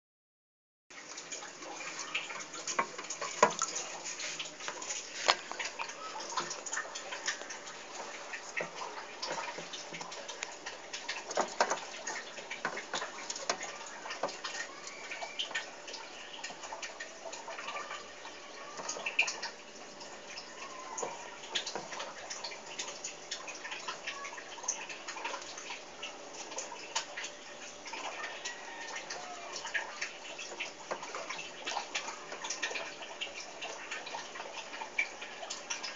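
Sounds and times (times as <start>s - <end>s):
water trickling and splashing: 0.9s - 35.9s
small clicks and taps: 4.6s - 15.7s.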